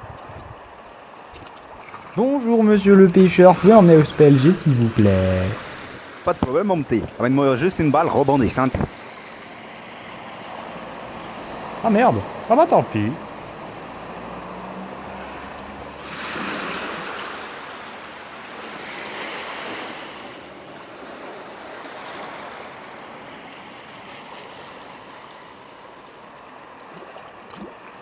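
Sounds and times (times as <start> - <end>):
sea waves washing: 1.8 - 14.2.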